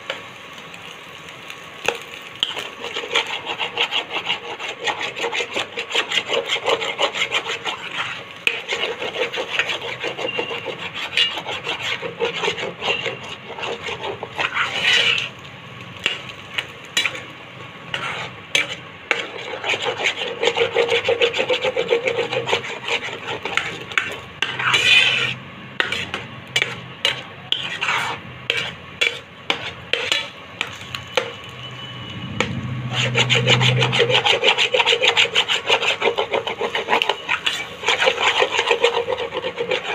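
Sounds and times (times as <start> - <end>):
spatula scraping a frying pan: 1.8 - 31.5, 32.4 - 39.9
low hum: 31.5 - 34.4.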